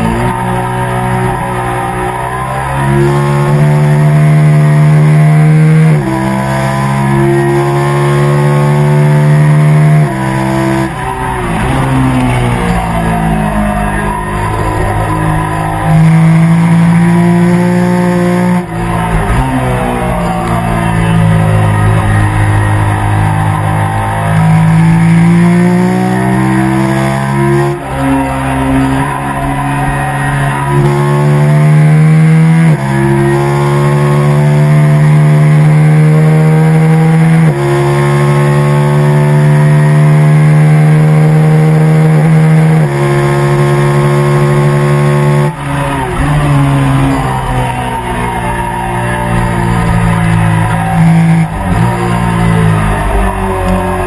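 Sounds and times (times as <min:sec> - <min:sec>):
motorcycle engine revving high: 0:00.0 - 0:54.0.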